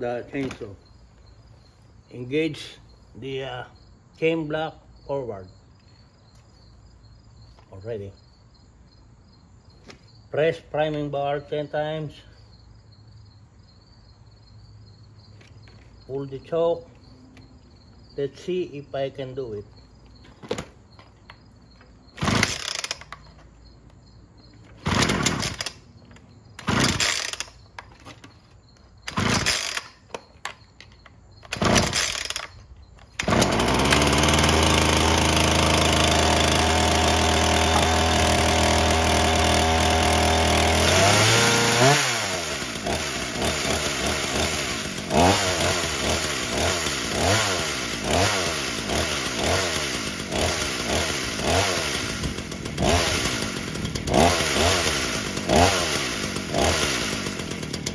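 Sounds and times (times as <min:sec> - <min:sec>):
chainsaw engine idling: 0:22.2 - 0:23.1, 0:24.8 - 0:25.8, 0:26.6 - 0:27.6, 0:29.1 - 0:29.9, 0:31.5 - 0:57.9
chainsaw starter cord pulls: 0:22.2 - 0:23.4, 0:24.7 - 0:25.8, 0:26.6 - 0:28.4, 0:29.0 - 0:57.9.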